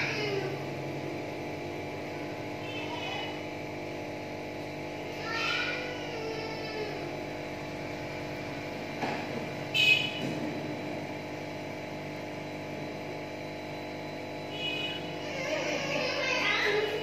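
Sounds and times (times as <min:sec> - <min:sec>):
aquarium air pump humming: 0:00.0 - 0:17.0.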